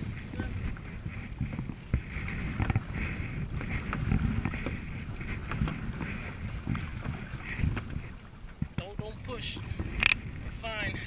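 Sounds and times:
paddle strokes: 0.0 - 11.0
water lapping against hull: 0.0 - 11.0
wind buffeting microphone: 0.0 - 11.0.

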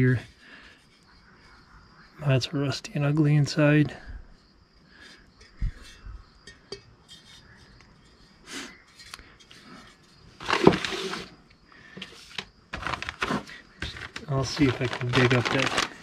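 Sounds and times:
handling noises: 8.9 - 16.0
plastic bags crinkling: 10.4 - 11.3, 12.8 - 16.0.

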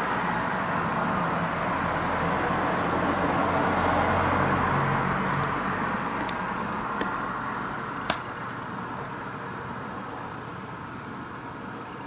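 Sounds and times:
low engine hum: 0.0 - 10.2
vehicle rushing past: 1.0 - 7.4.

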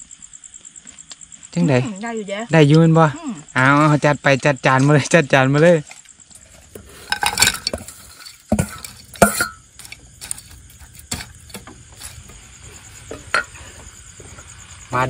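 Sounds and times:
plates and spoon clinking: 6.4 - 12.2, 13.1 - 13.9.

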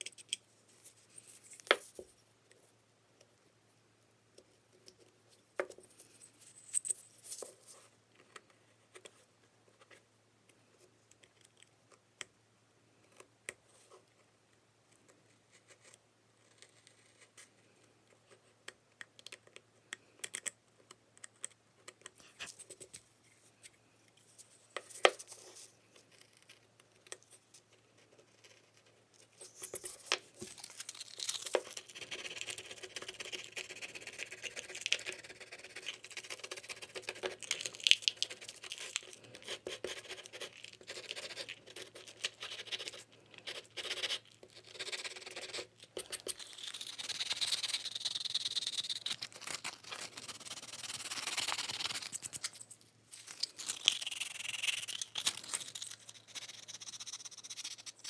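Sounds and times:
small clicks and scratches: 0.0 - 3.5, 4.4 - 12.3, 12.9 - 58.0.

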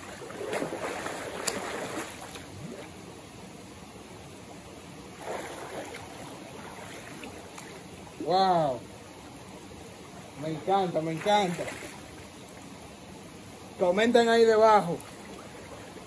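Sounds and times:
water rushing at waterfall: 0.0 - 16.0.

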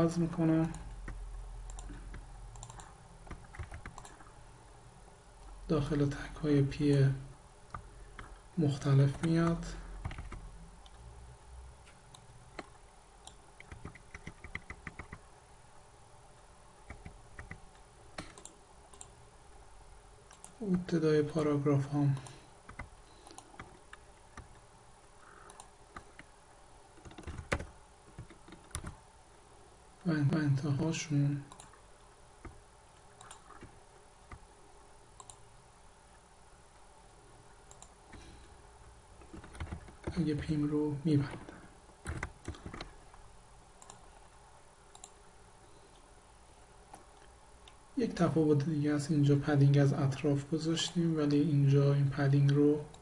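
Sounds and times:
room hiss: 0.0 - 53.0
keyboard keys clicking: 0.6 - 4.2, 10.0 - 10.4, 12.1 - 15.2, 27.0 - 29.0, 39.3 - 40.2
computer mouse clicks: 0.6 - 4.3, 10.0 - 11.0, 11.8 - 15.2, 16.9 - 19.2, 20.2 - 20.8, 22.1 - 24.6, 25.2 - 26.3, 27.0 - 29.0, 31.5 - 31.8, 32.4 - 34.4, 35.2 - 35.4, 37.6 - 38.5, 39.2 - 40.5, 41.3 - 42.9, 43.8 - 44.2, 44.9 - 45.2.

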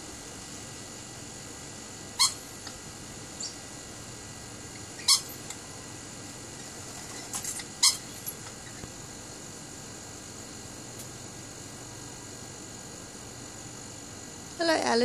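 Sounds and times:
parrots screeching: 2.2 - 2.4, 5.0 - 5.4, 7.8 - 8.8.

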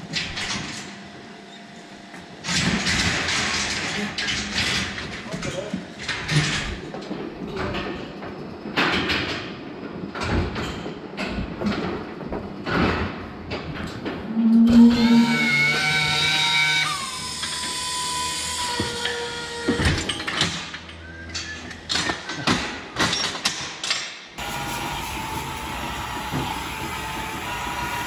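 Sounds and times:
motor whining: 14.5 - 20.3.

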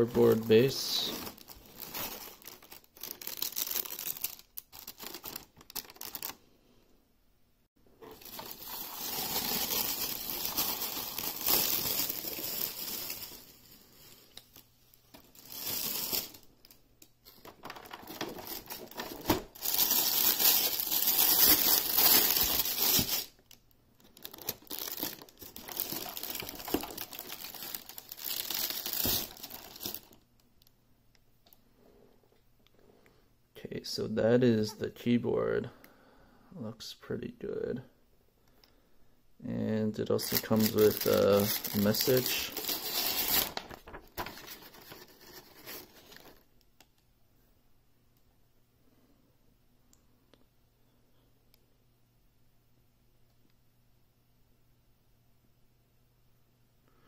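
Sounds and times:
plastic bag rustling: 0.0 - 6.4, 8.0 - 30.2, 40.1 - 46.5.

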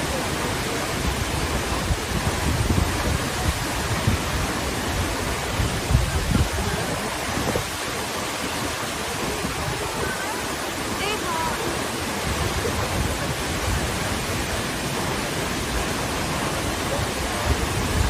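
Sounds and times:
waterfall roaring: 0.0 - 18.0.

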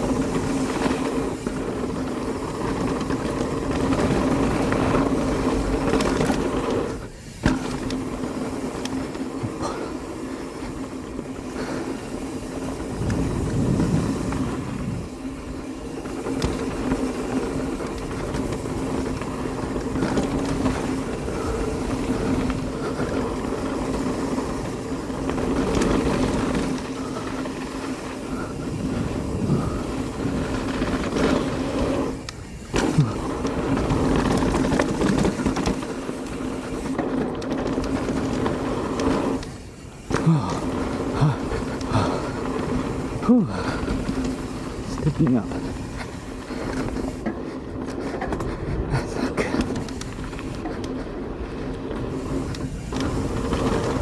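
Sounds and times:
bike rattling: 0.0 - 54.0
bike tyres rolling on dirt: 0.0 - 54.0
wind on microphone: 12.7 - 15.3, 28.2 - 35.6.

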